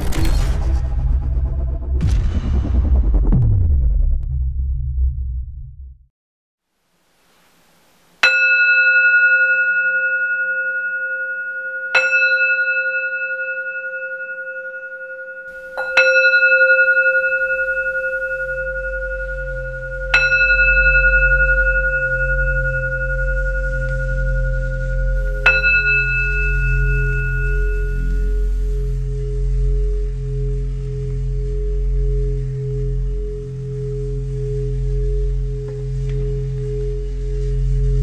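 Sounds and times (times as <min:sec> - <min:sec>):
low hum: 0:00.0 - 0:06.0, 0:15.5 - 0:38.0
singing bowl struck with mallet: 0:08.2 - 0:29.0.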